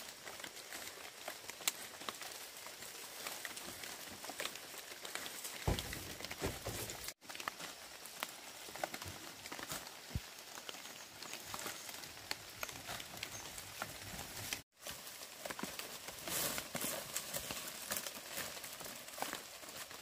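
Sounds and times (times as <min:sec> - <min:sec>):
dry thatch rustling and crackling: 0:00.0 - 0:20.0
dull thumps: 0:05.6 - 0:07.1.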